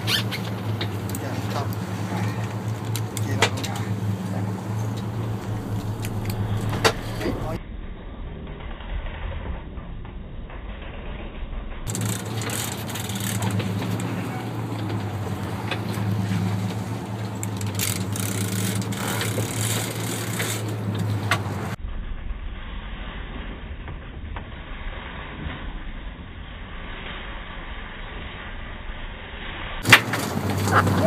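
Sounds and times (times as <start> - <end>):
boat engine running: 0.0 - 7.6, 11.9 - 21.8, 29.8 - 31.0
water noise: 0.0 - 7.7, 11.9 - 31.0
wind: 0.0 - 31.0.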